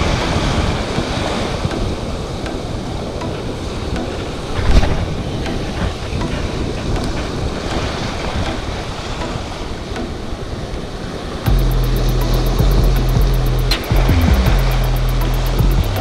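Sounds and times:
background music with beat: 0.0 - 10.8, 11.5 - 16.0
wind buffeting microphone: 0.0 - 11.4.

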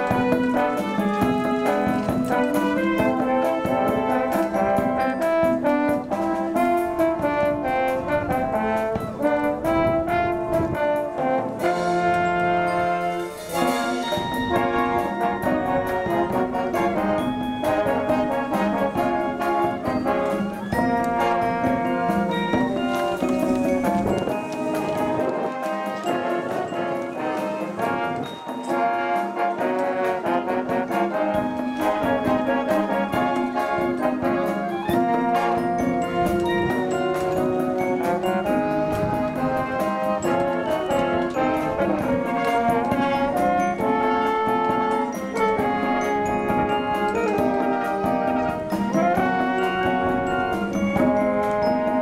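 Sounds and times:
wind band playing pop song: 0.0 - 52.0.

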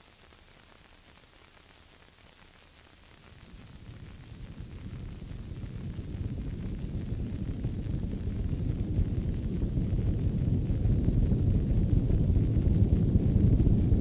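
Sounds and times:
faint hiss: 0.0 - 14.0
dense low rumble: 3.3 - 14.0.

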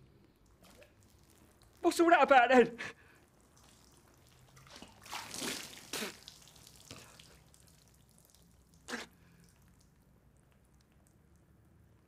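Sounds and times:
man blowing and spluttering: 3.0 - 7.7, 8.7 - 9.7
liquid splashing off a face: 3.4 - 9.9.

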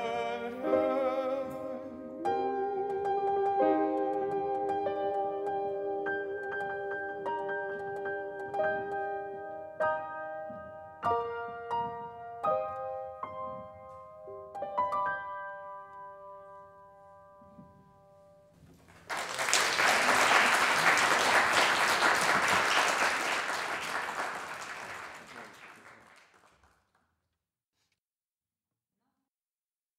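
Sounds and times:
audience applauding: 18.8 - 27.0.

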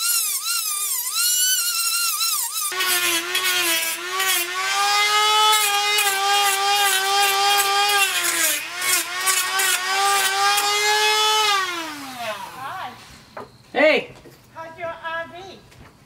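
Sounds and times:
rotary tool whining while cutting: 0.0 - 12.8.

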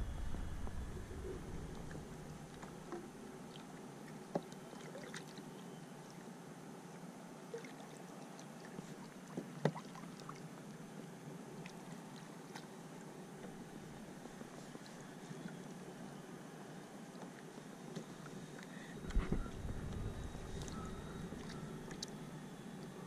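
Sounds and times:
water sloshing and splashing: 0.1 - 6.2, 7.5 - 10.7, 18.2 - 22.3.

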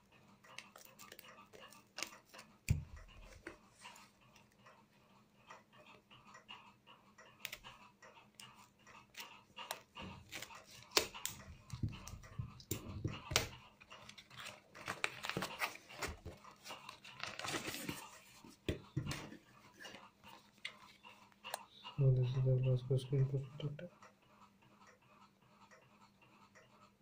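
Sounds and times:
scissors cutting tape: 9.2 - 11.8.

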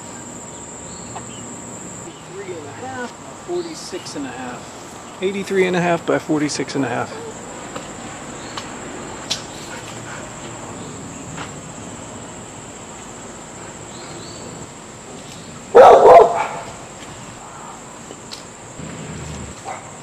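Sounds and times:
high insect buzz: 0.0 - 5.4, 16.4 - 20.0
dog barking: 15.7 - 16.7, 19.5 - 20.0.

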